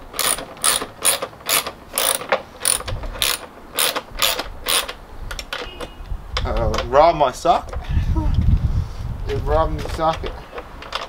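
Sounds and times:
ratchet wrench clicking: 0.0s - 5.6s.

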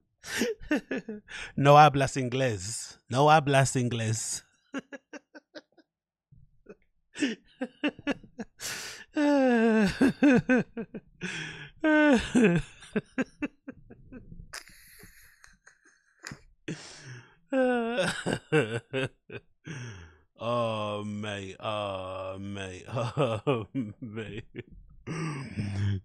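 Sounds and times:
man laughing hard: 0.3s - 1.6s, 4.8s - 5.6s, 7.2s - 14.2s, 16.7s - 26.0s
breathy gasps: 1.3s - 1.6s, 8.6s - 9.2s, 11.2s - 11.8s, 16.7s - 17.4s, 19.7s - 20.2s, 25.1s - 26.0s.

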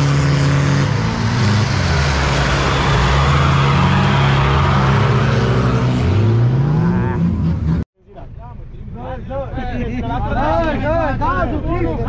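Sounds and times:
tyres churning through mud: 0.0s - 7.8s
off-road truck engines running hard: 0.0s - 12.0s.

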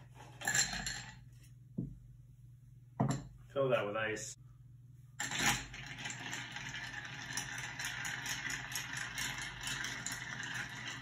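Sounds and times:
spoon stirring ice in glass: 5.2s - 11.0s.

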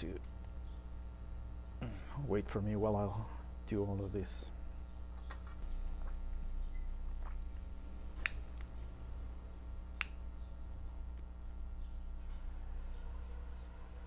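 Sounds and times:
lighter ignition clicking: 8.2s - 8.9s, 9.8s - 10.4s.

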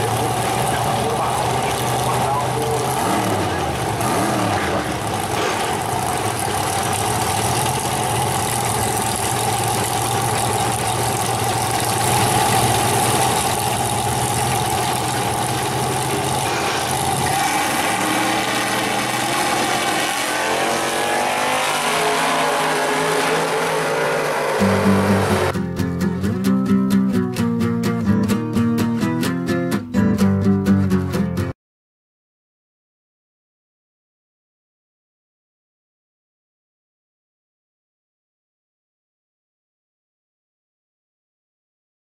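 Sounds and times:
drag car engines running: 0.0s - 25.6s.

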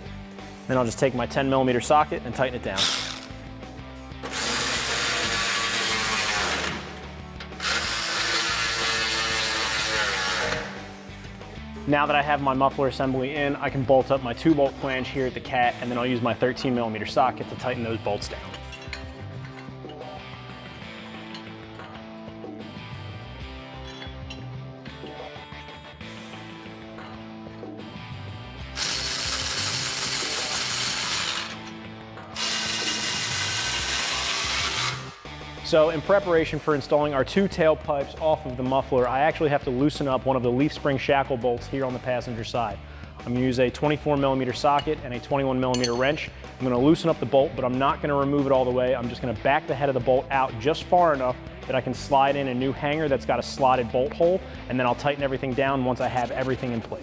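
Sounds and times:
power tool spinning socket: 2.8s - 3.4s, 4.2s - 10.9s, 28.8s - 35.2s.

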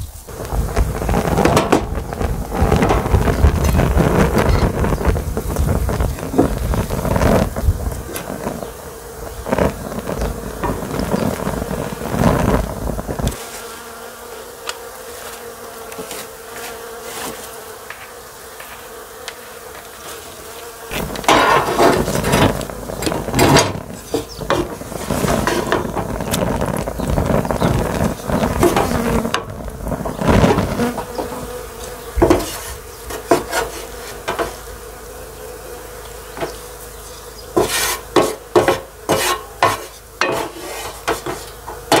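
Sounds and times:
wind rumble on microphone: 0.0s - 13.4s, 20.9s - 31.5s
insect buzzing: 0.0s - 42.0s
spatula scraping metal pan: 20.9s - 26.0s, 32.3s - 34.5s, 37.6s - 42.0s.

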